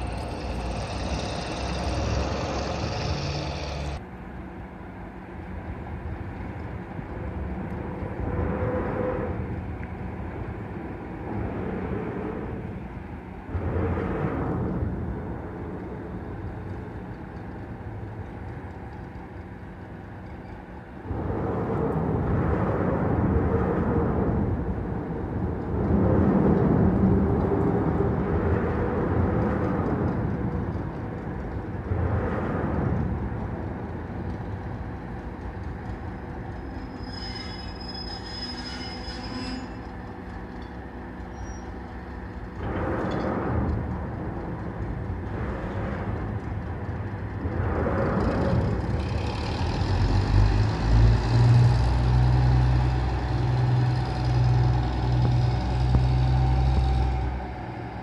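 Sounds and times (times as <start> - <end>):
high wheel squeal: 0.0 - 4.0, 36.4 - 40.7, 41.3 - 41.8
diesel locomotive engine throb: 0.0 - 58.0
railcars rolling: 0.0 - 58.0.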